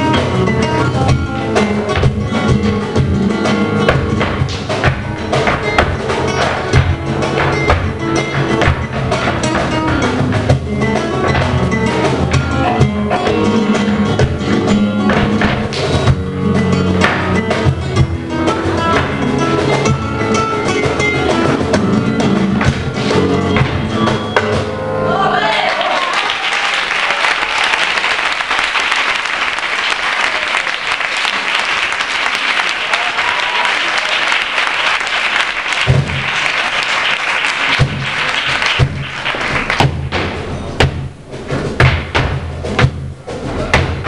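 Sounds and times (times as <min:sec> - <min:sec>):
flamenco guitar music: 0:00.0 - 0:25.3, 0:31.2 - 0:44.0
sharp knocks and thumps: 0:01.9 - 0:03.1, 0:03.8 - 0:11.7, 0:15.0 - 0:16.2, 0:22.6 - 0:24.7, 0:37.7 - 0:44.0
audience applause and cheering: 0:25.1 - 0:39.9.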